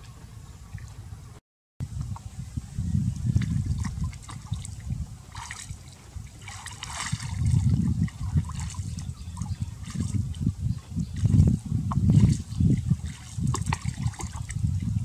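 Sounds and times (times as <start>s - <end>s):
water sloshing around person wading: 3.2s - 15.0s
water splashes: 3.2s - 15.0s.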